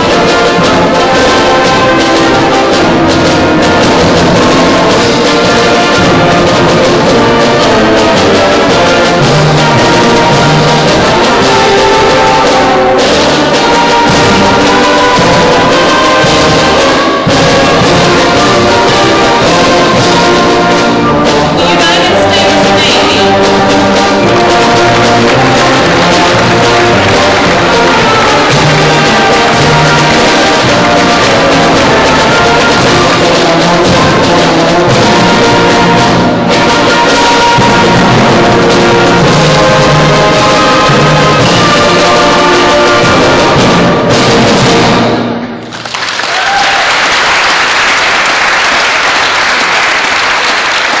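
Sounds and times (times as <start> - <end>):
concert band playing: 0.0 - 51.0
audience applause: 25.1 - 31.3, 45.6 - 51.0.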